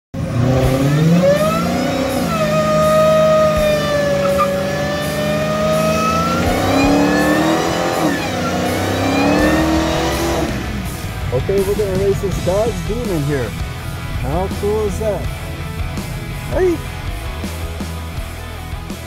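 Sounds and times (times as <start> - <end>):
tyres spinning in burnout: 0.2 - 12.5
car engine revving: 0.2 - 19.0.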